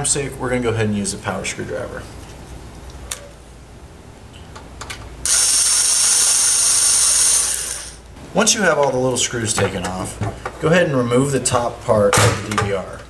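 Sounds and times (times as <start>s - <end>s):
power screwdriver whining: 5.2s - 8.1s.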